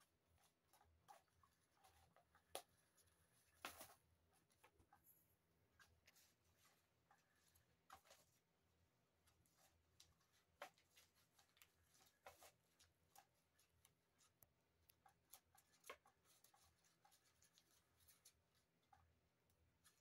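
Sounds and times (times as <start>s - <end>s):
faint scratches: 0.2s - 19.1s.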